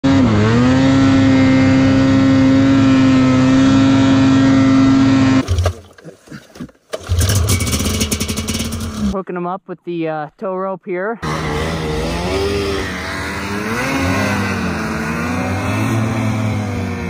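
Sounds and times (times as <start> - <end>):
snowmobile engine revving: 0.0 - 5.6, 7.0 - 9.2, 11.2 - 17.0.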